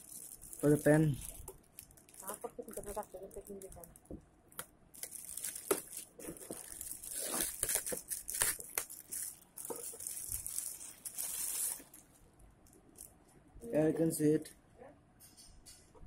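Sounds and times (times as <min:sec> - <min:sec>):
plastic wrapping crinkling and tearing: 0:00.0 - 0:12.2.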